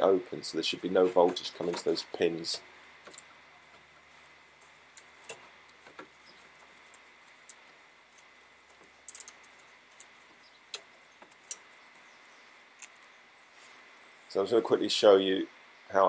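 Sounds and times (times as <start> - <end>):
probe clicking on metal pins: 4.9 - 13.1.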